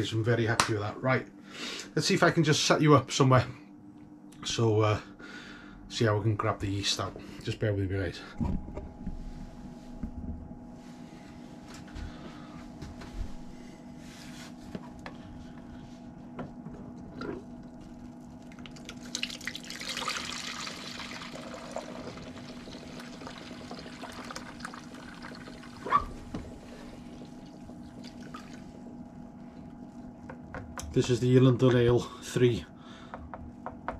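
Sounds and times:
faint steady hum: 0:00.0 - 0:33.9
liquid pouring into jug: 0:17.1 - 0:25.9, 0:26.7 - 0:28.9.

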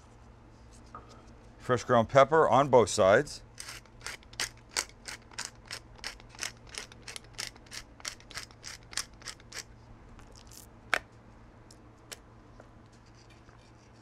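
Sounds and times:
pepper mill grinding: 0:03.6 - 0:10.7.

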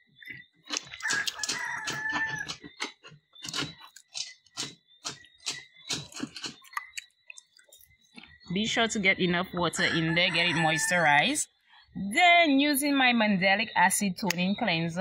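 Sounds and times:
rooster crowing: 0:01.0 - 0:02.6, 0:09.8 - 0:11.4.

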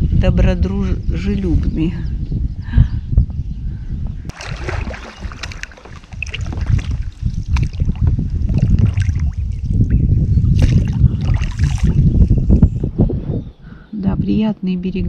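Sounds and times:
wind rumble on microphone: 0:00.0 - 0:15.0
paddle splashing in water: 0:04.3 - 0:09.7, 0:10.5 - 0:12.0.

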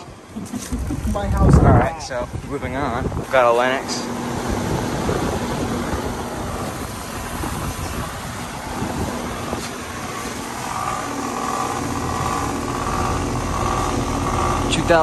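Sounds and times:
heat pump hum and whoosh: 0:00.0 - 0:15.0
rough buzzing tone: 0:03.1 - 0:15.0.

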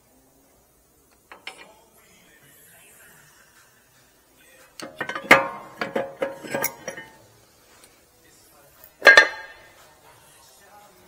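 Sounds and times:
brake rotor clanking on metal: 0:04.8 - 0:07.2, 0:09.0 - 0:09.7.

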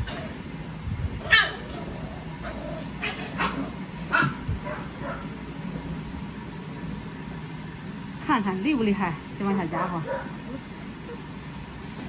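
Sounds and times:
puppies yipping and barking: 0:01.2 - 0:05.4, 0:09.7 - 0:12.0.

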